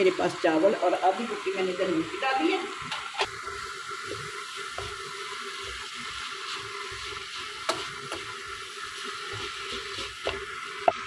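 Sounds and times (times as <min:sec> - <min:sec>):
rice sizzling in a wok: 0:00.0 - 0:11.0
spatula knocking against pan: 0:07.6 - 0:08.3.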